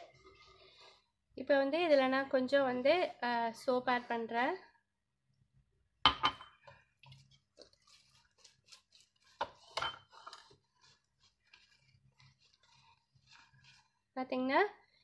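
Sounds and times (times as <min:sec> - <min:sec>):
wet scrubber squelching: 0:07.1 - 0:14.1.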